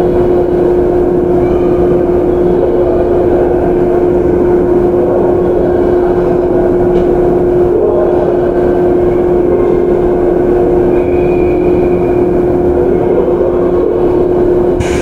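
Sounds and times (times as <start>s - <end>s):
electric train hum and rumble: 0.0s - 15.0s.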